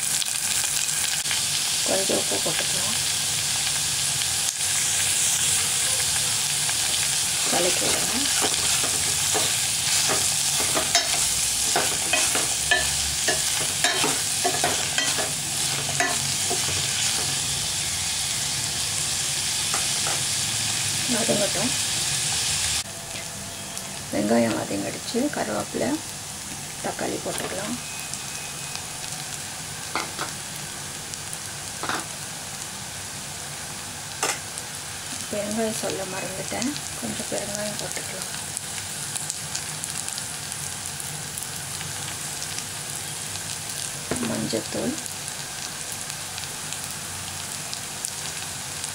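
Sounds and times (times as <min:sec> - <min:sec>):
onions sizzling in hot oil: 0:00.0 - 0:48.9
metal spoon scraping a pan: 0:07.4 - 0:17.4.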